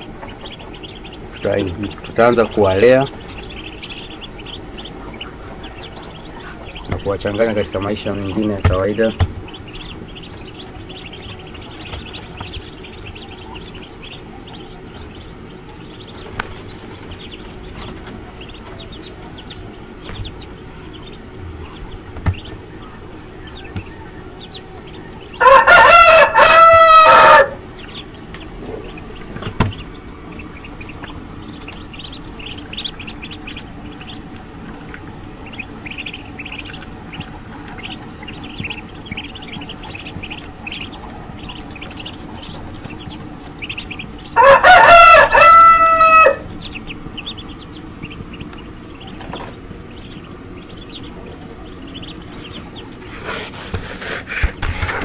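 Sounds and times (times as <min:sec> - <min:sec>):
ducklings peeping: 0:00.0 - 0:55.0
rooster crowing: 0:23.6 - 0:28.1, 0:43.0 - 0:46.9.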